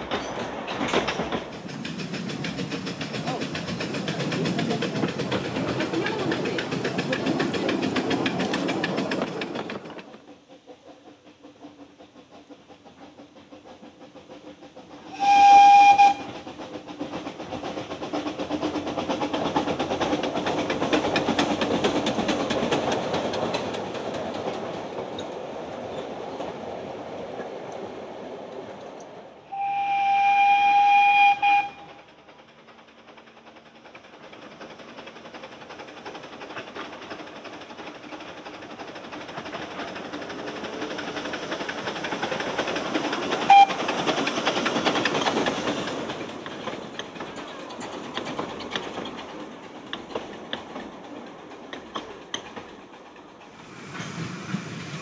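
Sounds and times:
carriages rattling over rails: 0.0s - 29.3s, 30.2s - 55.0s
steam engine working: 0.8s - 25.6s, 29.5s - 55.0s
steam hissing from cylinders: 1.4s - 23.8s, 29.5s - 50.5s, 53.3s - 55.0s
steam whistle blast: 15.1s - 16.3s, 29.5s - 31.9s, 43.5s - 43.8s.

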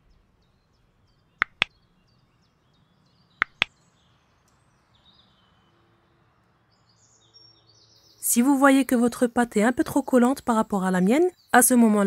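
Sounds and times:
mouse click sound effects: 1.4s - 1.7s, 3.4s - 3.7s.

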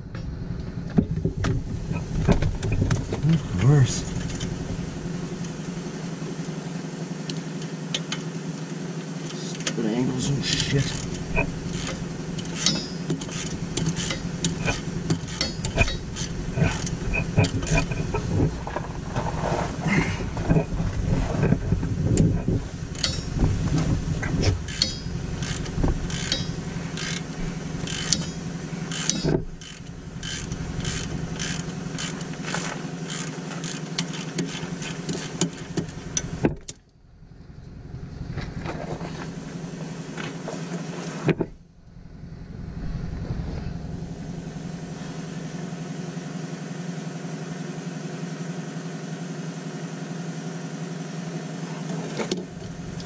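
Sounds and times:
steady low hum: 0.0s - 50.5s
hand ratchet clicking: 10.6s - 18.1s, 22.9s - 23.3s, 24.7s - 36.3s.

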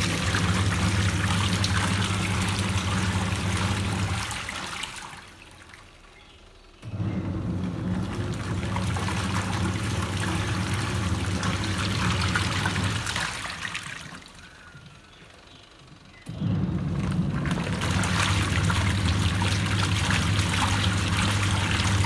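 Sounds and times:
water and clothes churning: 0.0s - 6.2s, 6.9s - 15.0s, 16.3s - 22.0s
washing machine motor hum: 0.0s - 22.0s.

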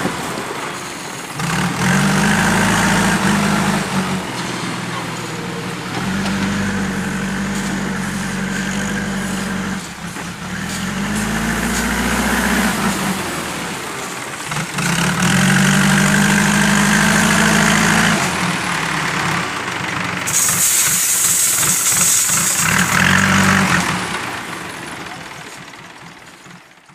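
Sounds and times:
bucket digging gravel: 0.0s - 16.5s, 20.3s - 24.3s
diesel engine revving: 0.0s - 26.9s
high hiss: 20.3s - 23.6s.

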